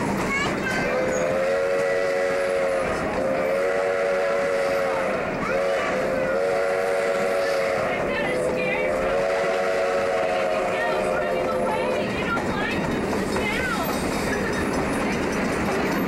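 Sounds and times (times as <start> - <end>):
moving train noise: 0.0 - 16.0
steam whistle blasts: 0.9 - 8.1, 8.9 - 11.2.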